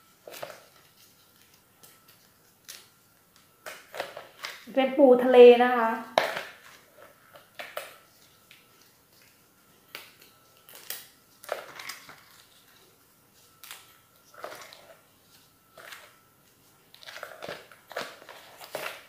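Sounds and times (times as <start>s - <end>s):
crab shells cracking: 9.9s - 12.5s.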